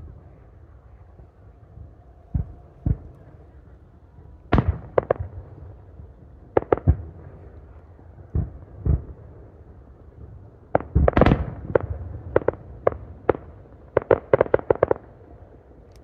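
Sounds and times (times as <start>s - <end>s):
fireworks bangs: 1.8s - 7.5s, 10.8s - 15.1s.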